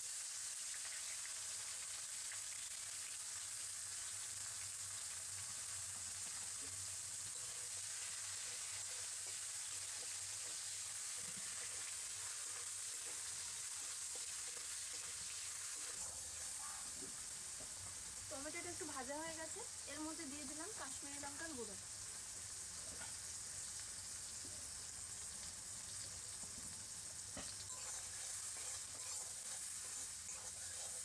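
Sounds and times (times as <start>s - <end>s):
tomatoes sizzling in oil: 0.0s - 31.0s
metal spatula stirring: 27.6s - 31.0s.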